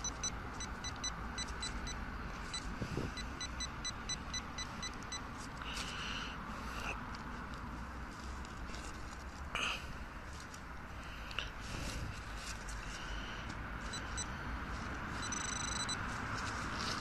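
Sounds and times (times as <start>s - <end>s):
longer electronic beep: 0.0s - 5.2s, 15.2s - 16.0s
rapid electronic beeps: 0.0s - 5.2s, 15.2s - 16.0s.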